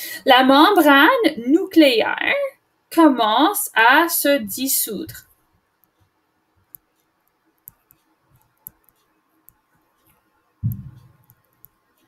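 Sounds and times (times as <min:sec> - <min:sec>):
stylus tapping on tablet screen: 0:05.8 - 0:12.0
low thump: 0:10.6 - 0:11.2.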